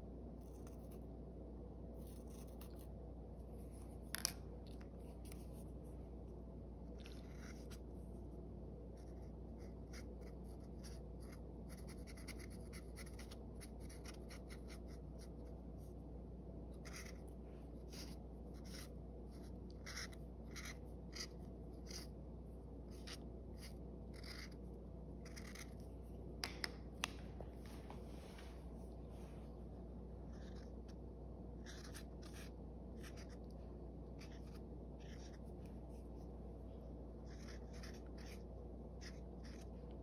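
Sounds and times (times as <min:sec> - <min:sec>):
felt-tip marker scratching on paper: 0:02.0 - 0:02.8, 0:08.9 - 0:15.5, 0:16.8 - 0:22.1, 0:22.9 - 0:24.6, 0:25.2 - 0:25.9, 0:30.2 - 0:31.0, 0:31.6 - 0:33.5, 0:34.1 - 0:36.3, 0:37.2 - 0:39.8.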